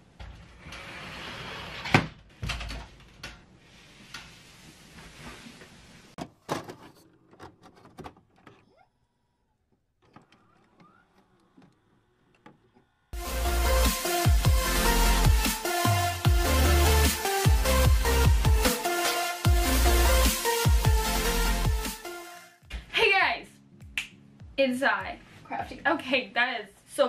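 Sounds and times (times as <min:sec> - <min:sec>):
electronic music with heavy beat: 0:13.2 - 0:22.5.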